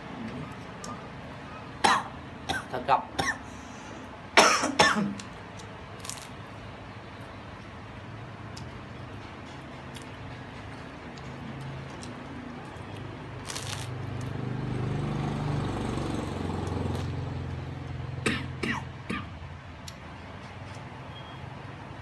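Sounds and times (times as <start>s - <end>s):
crusty bread crunching: 5.2s - 6.4s, 11.6s - 14.4s
passing vehicle engine hum: 9.1s - 21.0s.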